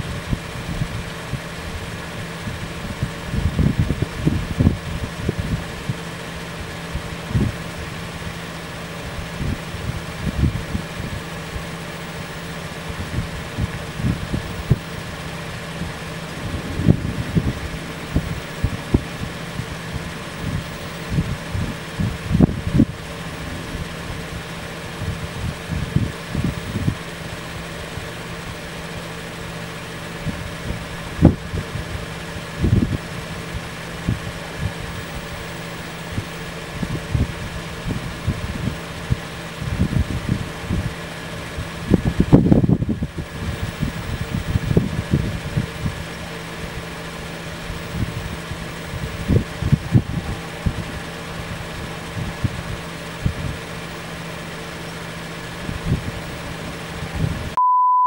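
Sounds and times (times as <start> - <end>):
vehicle engine idling: 0.0 - 57.6
wind buffeting microphone: 0.0 - 57.6.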